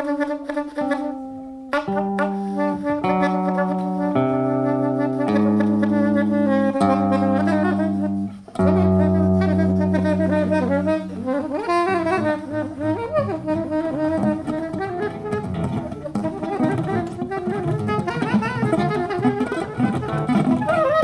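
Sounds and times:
guitar improvising: 0.0s - 21.0s
soprano saxophone improvising: 0.0s - 21.0s.

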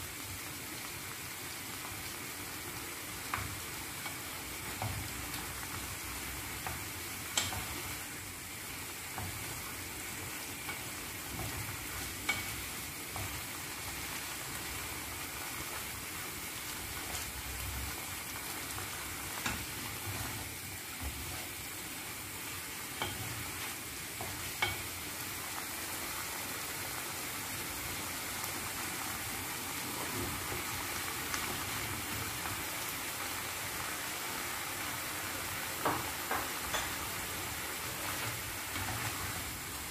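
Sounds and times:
food sizzling in frying pan: 0.0s - 39.9s
spatula knocking against pan: 10.6s - 13.4s.

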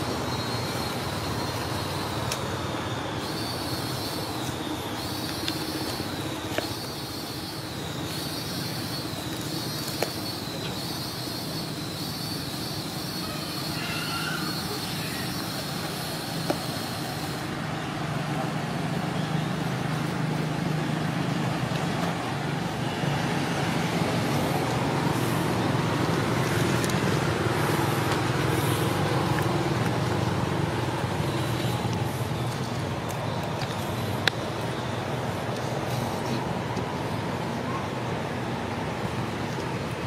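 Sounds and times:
thin high steady tone: 0.0s - 18.1s
low engine hum: 14.5s - 40.0s.

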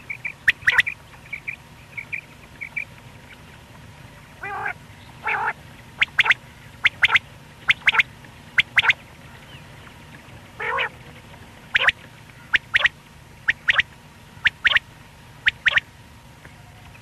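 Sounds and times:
quail calling: 0.0s - 3.4s, 4.4s - 9.6s, 10.6s - 11.0s, 11.7s - 17.0s.

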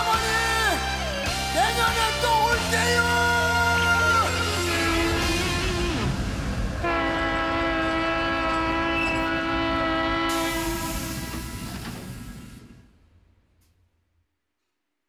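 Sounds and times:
train horn chord: 6.8s - 12.2s
hiss: 10.3s - 12.9s.

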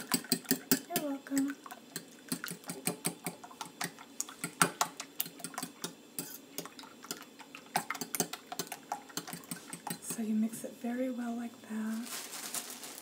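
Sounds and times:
fork beating eggs in glass dish: 0.0s - 10.3s.

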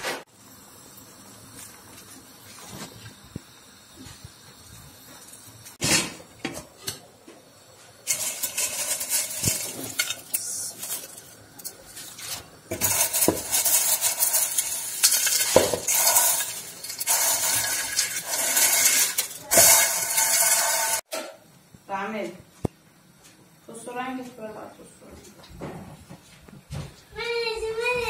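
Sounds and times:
boiling water bubbling: 0.3s - 21.0s.

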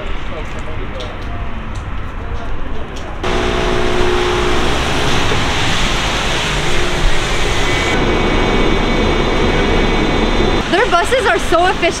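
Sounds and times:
street noise: 0.0s - 12.0s
bus engine running: 3.2s - 12.0s.

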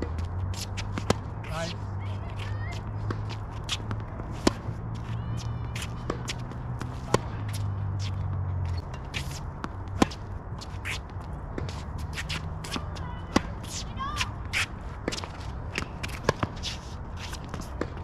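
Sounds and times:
racket hitting tennis ball: 0.0s - 18.0s
shoes squeaking on court: 0.0s - 18.0s.

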